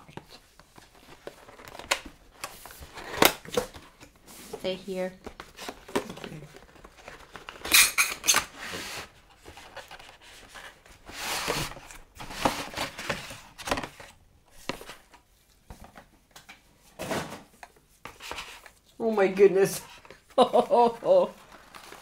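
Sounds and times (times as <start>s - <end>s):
packaging rustling: 0.1s - 4.2s, 5.0s - 16.1s, 20.8s - 22.0s.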